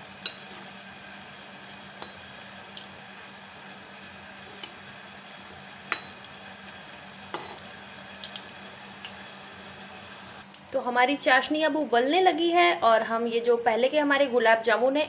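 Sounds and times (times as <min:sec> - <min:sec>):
balls sizzling in hot ghee: 0:00.0 - 0:10.6
ladle clinking against pan: 0:05.9 - 0:06.2.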